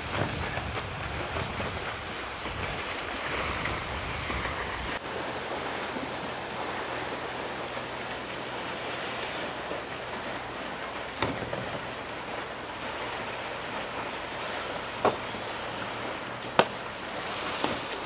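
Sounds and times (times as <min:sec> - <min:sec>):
wind rushing: 0:00.0 - 0:05.0
water rushing: 0:00.0 - 0:18.0.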